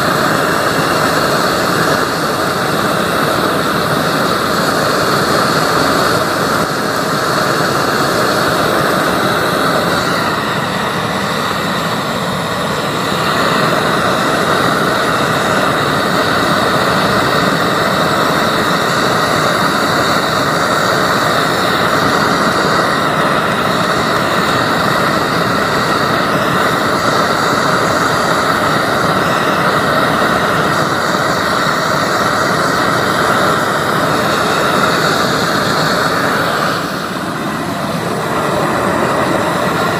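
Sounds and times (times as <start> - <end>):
gas burner flame rushing: 0.0 - 39.9.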